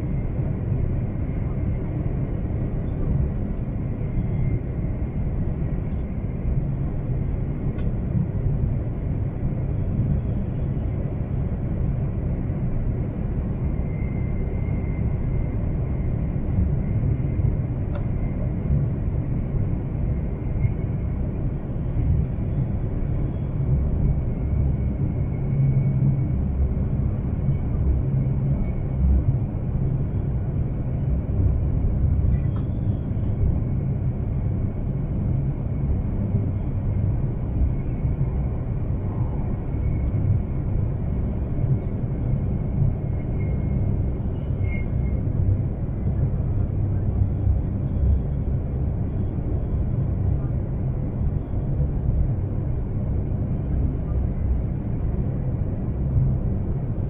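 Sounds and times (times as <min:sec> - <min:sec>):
train cabin low rumble: 0:00.0 - 0:57.0.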